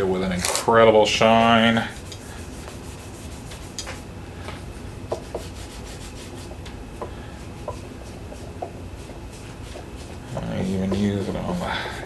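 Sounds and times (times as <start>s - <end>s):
cloth rubbing on guitar frets: 1.3s - 4.1s, 5.1s - 6.6s, 7.5s - 12.0s.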